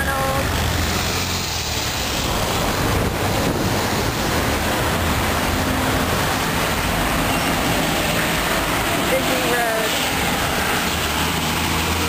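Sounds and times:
city street traffic: 0:00.0 - 0:12.0
wind on microphone: 0:02.2 - 0:06.7.

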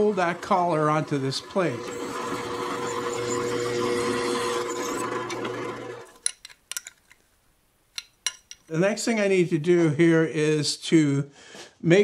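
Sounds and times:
drill press cutting steel: 0:00.0 - 0:06.2.

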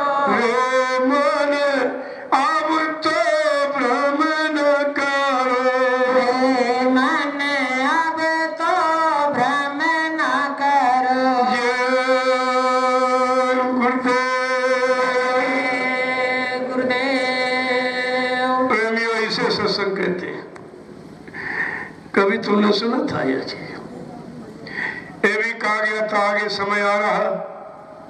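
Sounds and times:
man singing devotional song: 0:00.0 - 0:20.2.

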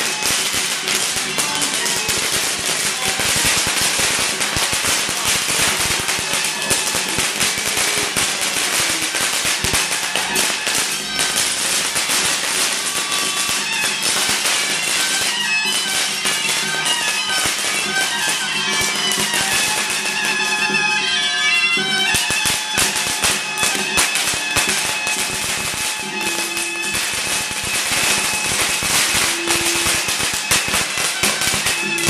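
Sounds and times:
firecrackers crackling: 0:00.0 - 0:32.0
ritual band music: 0:00.0 - 0:32.0.

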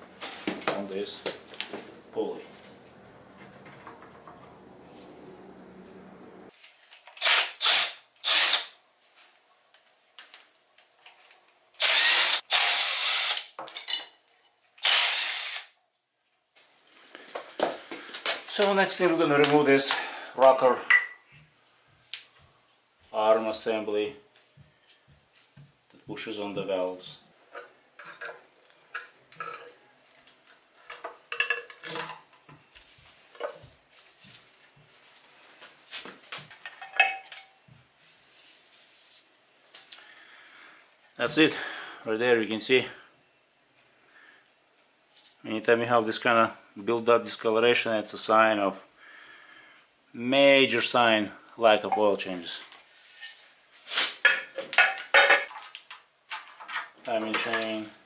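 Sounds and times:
power tool spinning bolts: 0:07.2 - 0:08.7, 0:11.8 - 0:13.6, 0:14.8 - 0:15.7.

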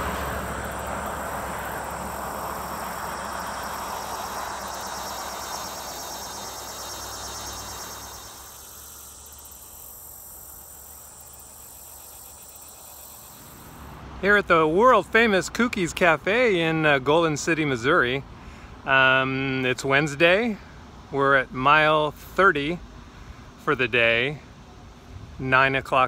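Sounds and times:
passing vehicle: 0:00.0 - 0:09.2
insects trilling: 0:00.0 - 0:13.9.

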